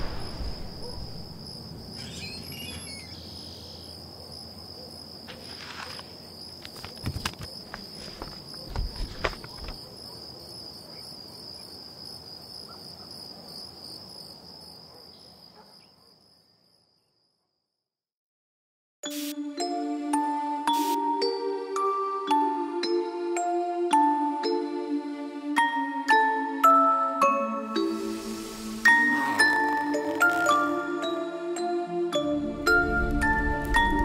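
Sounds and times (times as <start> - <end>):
crickets trilling: 0.0 - 17.0, 27.7 - 31.2.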